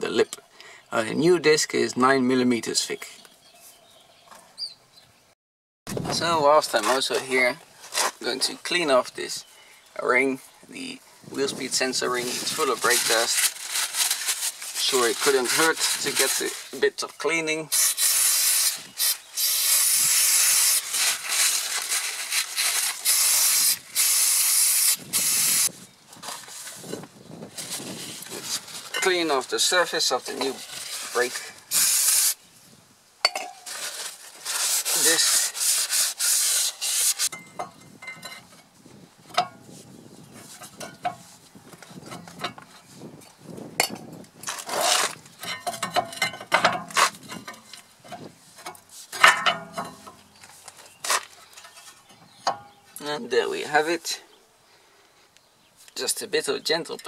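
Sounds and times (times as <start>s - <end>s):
aerosol spray hissing: 17.8s - 20.8s, 23.0s - 25.7s, 31.7s - 32.4s
metallic clinks and scrapes: 36.4s - 39.8s, 43.8s - 52.8s.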